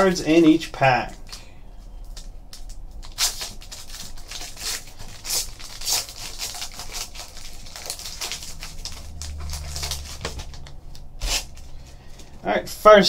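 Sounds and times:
foil wrapper tearing and crinkling: 0:02.1 - 0:12.3.

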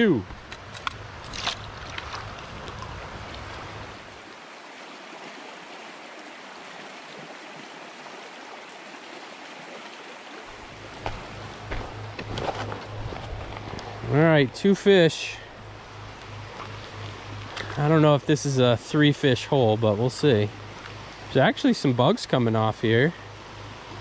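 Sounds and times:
stream rippling over stones: 0:00.0 - 0:24.0
small splashes: 0:01.2 - 0:08.6.

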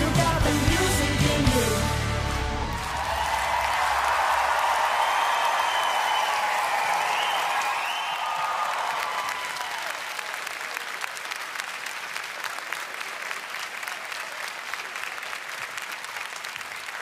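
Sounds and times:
studio audience applauding: 0:02.6 - 0:17.0.

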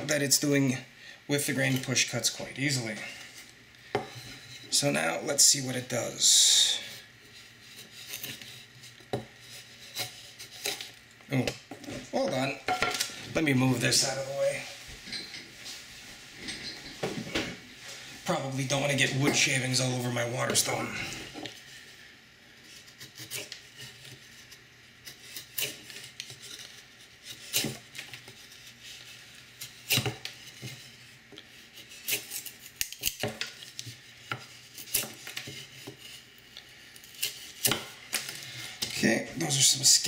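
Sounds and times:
knife whittling wood: 0:04.0 - 0:11.5, 0:22.6 - 0:40.0.

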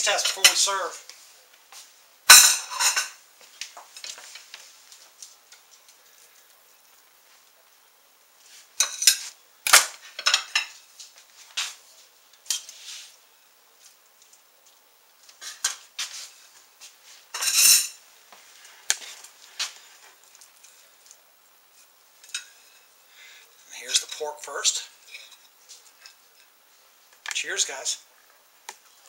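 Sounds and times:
utensils clinking on plate: 0:02.3 - 0:03.2, 0:08.8 - 0:09.3, 0:10.0 - 0:10.8, 0:17.3 - 0:18.0.

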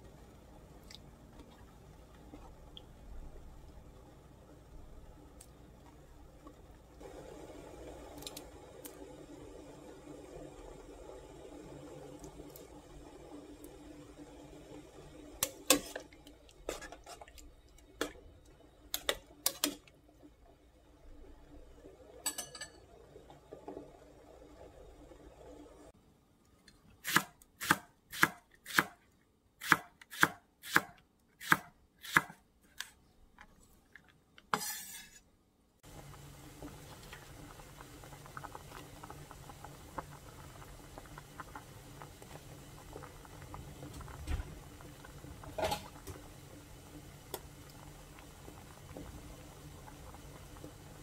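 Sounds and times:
soup simmering and bubbling: 0:00.0 - 0:27.6, 0:31.8 - 0:51.0
knife scraping board: 0:34.5 - 0:35.2.

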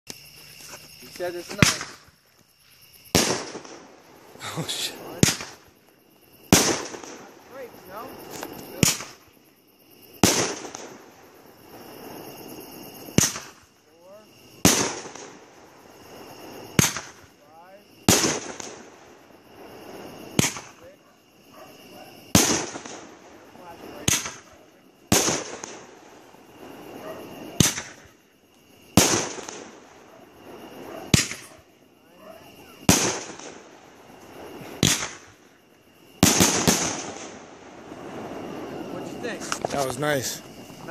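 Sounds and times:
firework hiss: 0:00.3 - 0:40.9
firework bangs: 0:01.1 - 0:02.2, 0:03.0 - 0:09.4, 0:10.1 - 0:40.9.

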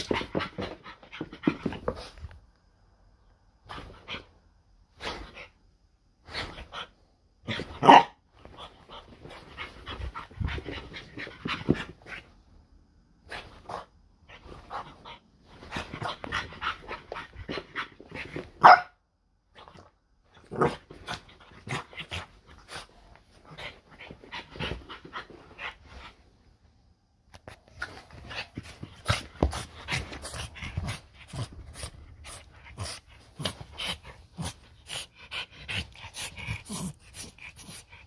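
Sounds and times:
dog barking: 0:07.8 - 0:08.2, 0:18.6 - 0:19.0
dog panting: 0:28.2 - 0:38.0.

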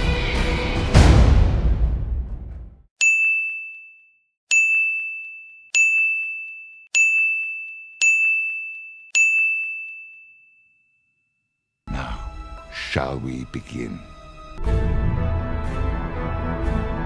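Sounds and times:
bright bell ding: 0:03.0 - 0:11.2.

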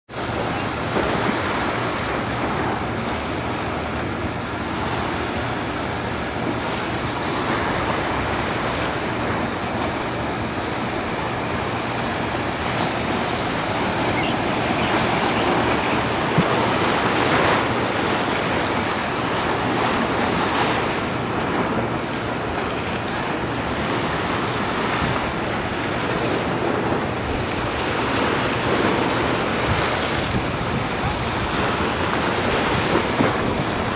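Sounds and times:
ocean waves breaking: 0:00.1 - 0:33.9.

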